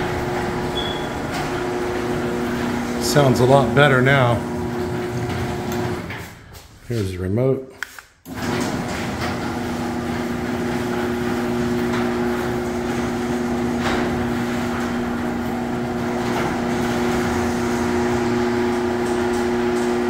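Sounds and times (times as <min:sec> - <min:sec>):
garage door opener motor hum: 0:00.0 - 0:06.8, 0:08.2 - 0:20.0.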